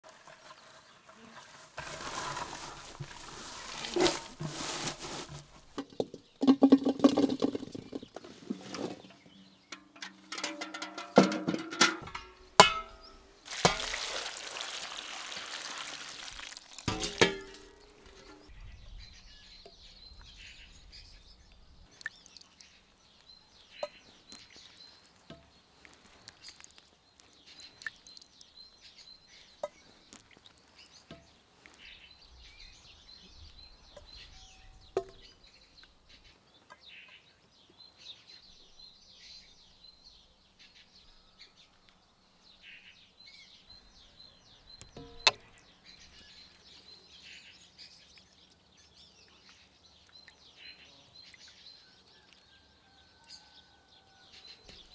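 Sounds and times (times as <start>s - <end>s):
birds chirping: 0.0s - 54.9s
strawberries knocking into enamel bowl: 5.8s - 8.1s, 10.2s - 13.9s.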